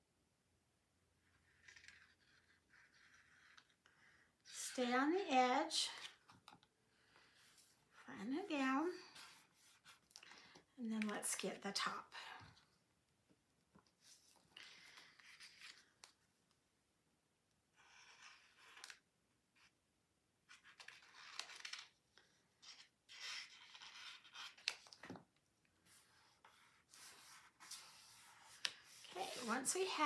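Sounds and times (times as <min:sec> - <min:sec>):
cardstock rustling and rubbing: 0:07.1 - 0:10.6, 0:14.0 - 0:16.2, 0:20.5 - 0:25.2, 0:25.8 - 0:30.0.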